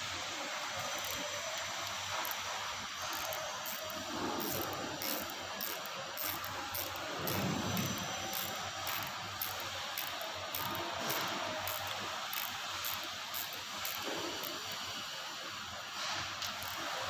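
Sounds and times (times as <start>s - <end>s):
metal hand tools clicking: 3.0s - 14.6s.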